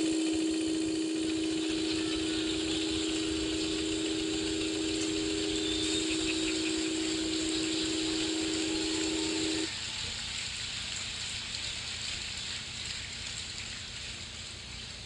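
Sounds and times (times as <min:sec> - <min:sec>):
steady electronic tone: 0:00.0 - 0:09.7
room noise hiss: 0:00.0 - 0:15.0.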